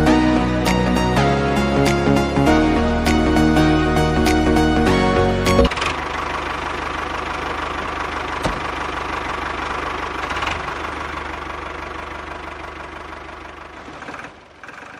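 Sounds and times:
toy tractor engine putter: 0:14.0 - 0:14.9.

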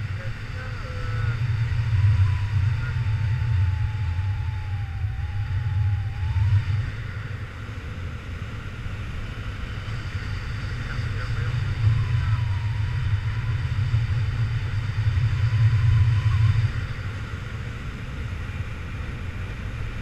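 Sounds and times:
wind buffeting microphone: 0:00.0 - 0:20.0
faint wavering whistle: 0:00.6 - 0:07.4.

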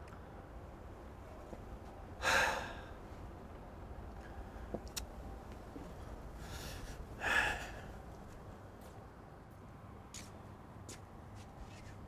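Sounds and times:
man breathing: 0:02.2 - 0:03.0, 0:06.4 - 0:08.0.

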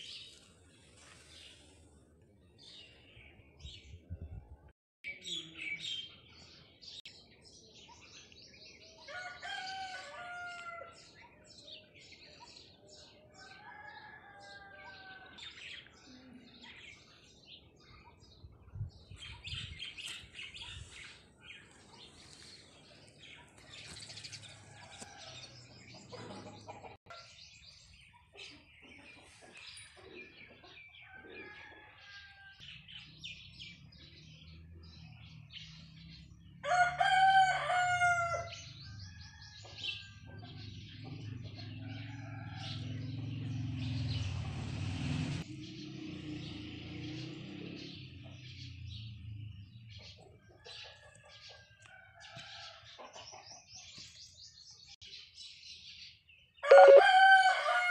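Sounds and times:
birds chirping: 0:56.6 - 0:57.2
long pitched bird calls: 0:56.6 - 0:57.6.

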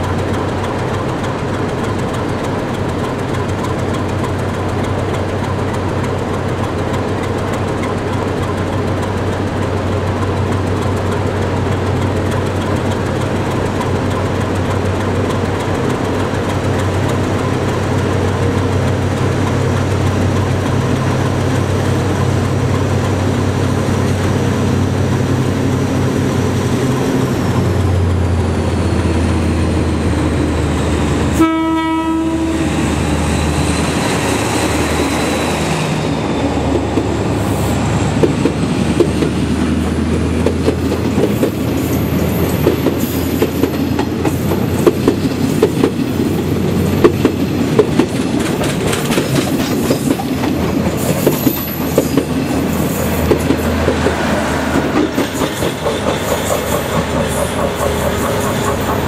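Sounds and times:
diesel engine drone: 0:00.0 - 0:40.8, 0:52.3 - 0:59.0
wheels clacking over rail joints: 0:00.0 - 0:59.0
train horn: 0:31.3 - 0:32.9.

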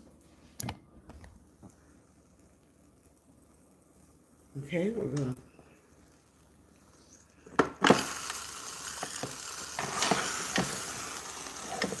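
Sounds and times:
food sizzling in waffle maker: 0:06.0 - 0:12.0.

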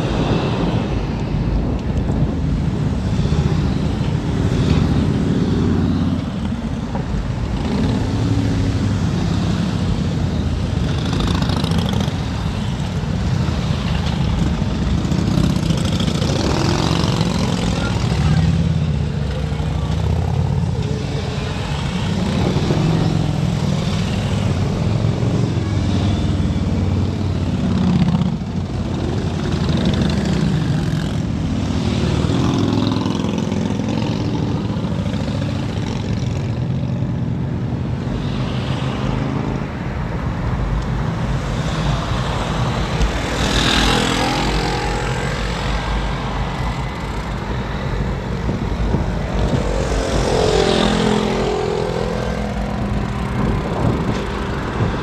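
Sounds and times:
wind rumble on microphone: 0:00.0 - 0:10.9, 0:44.3 - 0:55.0
motorcycle engines: 0:00.0 - 0:55.0
road traffic: 0:00.0 - 0:55.0.

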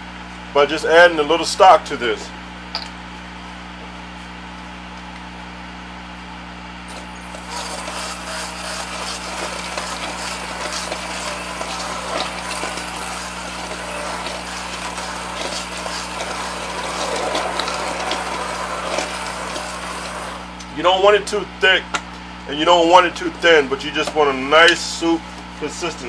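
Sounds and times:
immersion blender churning: 0:06.9 - 0:20.7.

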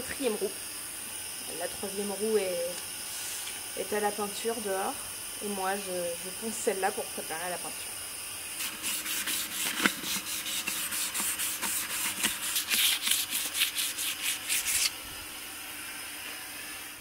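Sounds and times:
sandpaper scratching metal: 0:08.6 - 0:15.0.

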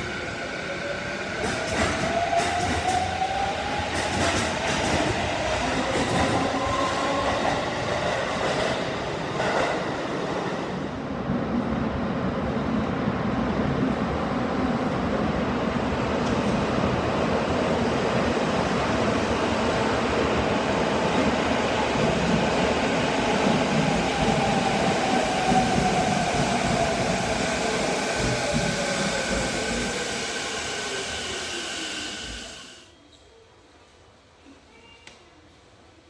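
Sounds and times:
train wheels rumbling on rails: 0:00.8 - 0:10.2, 0:16.1 - 0:32.7.

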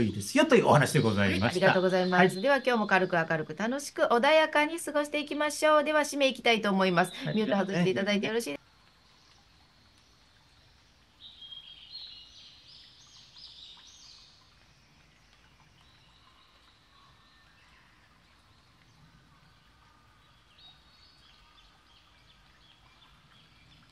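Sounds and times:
birds chirping: 0:00.0 - 0:08.6
low steady background noise: 0:00.0 - 0:23.9.

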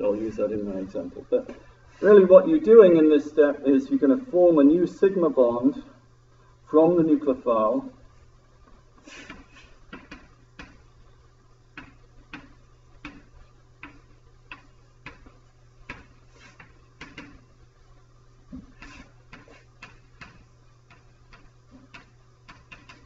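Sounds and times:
chalk tapping on blackboard: 0:09.2 - 0:10.8, 0:11.8 - 0:17.4, 0:18.6 - 0:23.0.

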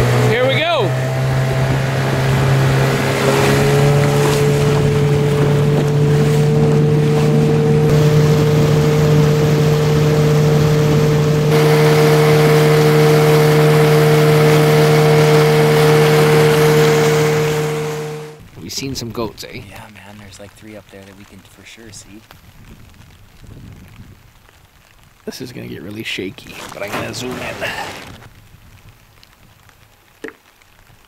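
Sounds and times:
outboard motor running: 0:00.0 - 0:18.4, 0:26.4 - 0:28.3
wind: 0:00.0 - 0:31.0
water hissing: 0:26.0 - 0:28.3.

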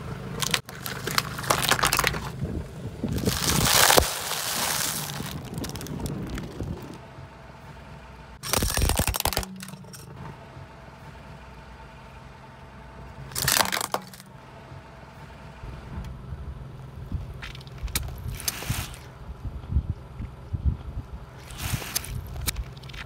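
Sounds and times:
car engine hum: 0:00.0 - 0:23.0
plastic tambourine crunching under tyre: 0:00.4 - 0:02.4, 0:03.0 - 0:07.0, 0:08.4 - 0:10.0, 0:13.3 - 0:14.3, 0:21.4 - 0:23.0.

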